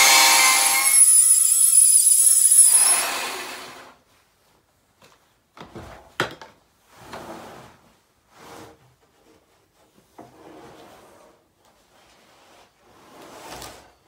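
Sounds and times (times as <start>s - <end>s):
chainsaw: 0.0s - 3.9s
wooden board scraping on steel: 12.0s - 14.0s.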